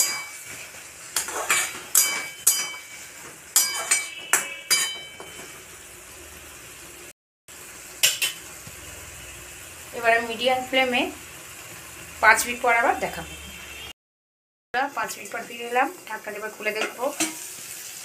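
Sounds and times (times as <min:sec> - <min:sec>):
spatula scraping and clinking on pan: 0:00.0 - 0:05.6
faint steady sizzle: 0:00.0 - 0:13.9, 0:14.8 - 0:18.0.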